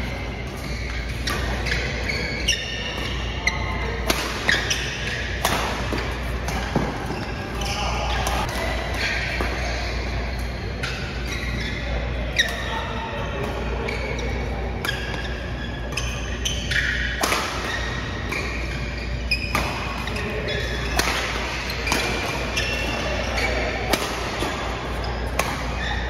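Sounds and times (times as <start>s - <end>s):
shoes squeaking on court: 0.0s - 26.0s
racket striking shuttlecock: 4.0s - 7.1s, 16.8s - 18.6s, 20.8s - 25.9s.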